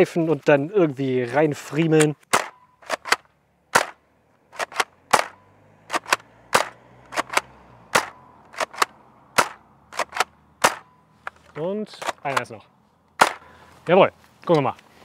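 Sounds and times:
sharp plastic clacks: 2.0s - 13.5s.

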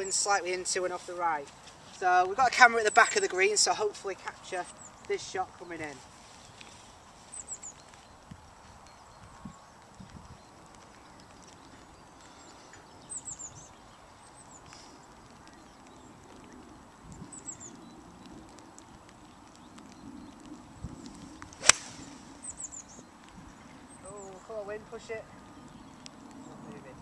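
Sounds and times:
low wind rumble: 0.0s - 27.0s
bird chirping: 4.4s - 18.0s, 21.2s - 26.8s
golf club striking ball: 21.6s - 22.2s.

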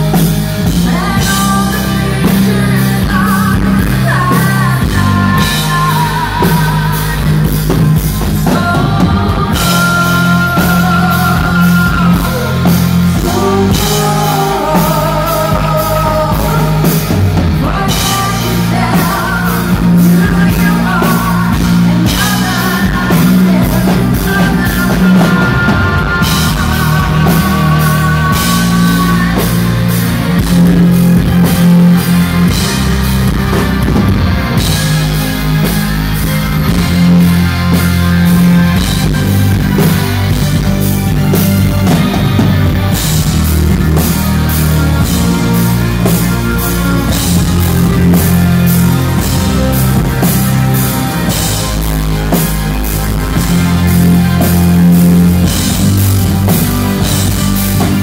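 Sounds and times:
drums: 0.0s - 58.0s
guitars: 0.0s - 58.0s
heavy bass: 0.0s - 58.0s
female vocal singing: 0.7s - 7.8s, 8.4s - 29.7s.

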